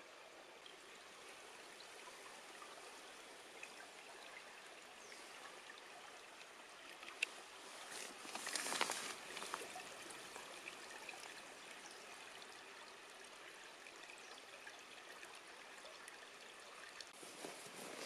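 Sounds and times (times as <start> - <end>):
stream water flowing: 0.0 - 18.0
rustle: 5.0 - 12.0, 17.1 - 18.0.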